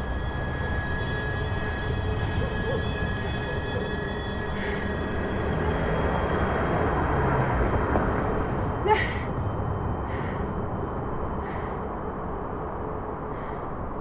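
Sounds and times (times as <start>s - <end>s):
low rumble: 0.0s - 14.0s
woman breathing heavily: 1.5s - 6.6s, 8.2s - 12.3s, 13.2s - 14.0s
woman gasping: 8.8s - 9.3s.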